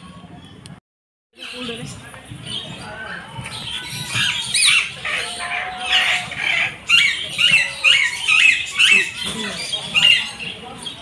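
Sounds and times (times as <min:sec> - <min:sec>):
parakeets squawking: 0:03.6 - 0:11.0.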